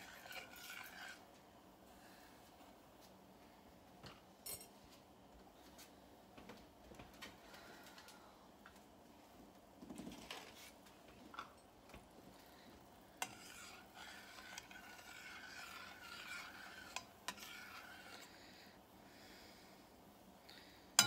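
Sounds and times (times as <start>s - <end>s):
spoon scraping a saucepan: 0.0s - 1.2s, 13.2s - 18.4s.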